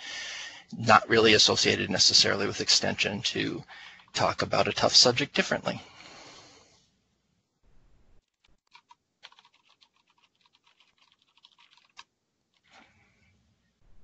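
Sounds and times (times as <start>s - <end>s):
faint keyboard typing: 8.2s - 12.9s.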